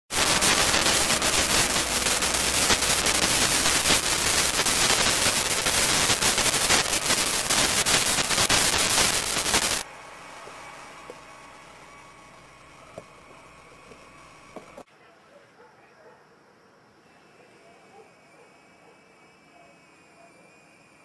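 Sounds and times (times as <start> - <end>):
faint hiss: 0.1 - 9.9
radio static crackle: 0.1 - 14.8.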